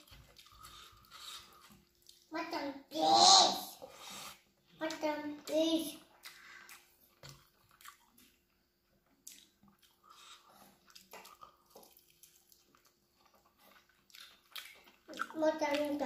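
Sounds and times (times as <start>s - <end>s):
chewing: 0.0s - 2.3s, 6.1s - 16.0s
wet smacks of eating by hand: 6.2s - 16.0s.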